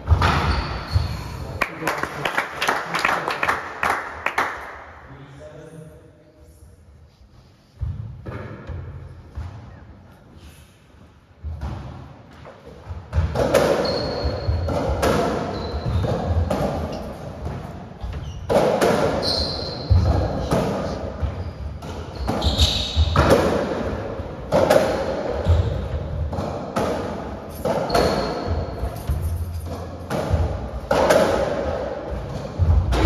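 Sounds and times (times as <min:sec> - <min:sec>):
shoe squeaks: 0:00.2 - 0:01.4, 0:13.5 - 0:17.3, 0:18.0 - 0:23.3, 0:25.4 - 0:26.0, 0:27.5 - 0:29.8
racquet striking ball: 0:11.4 - 0:33.0.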